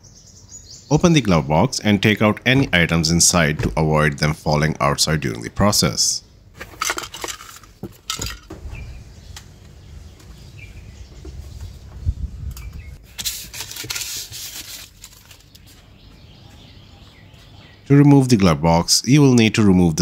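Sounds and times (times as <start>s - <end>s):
hard objects knocking and clinking: 6.6s - 8.6s
papers rustling: 6.6s - 8.6s, 13.0s - 15.9s.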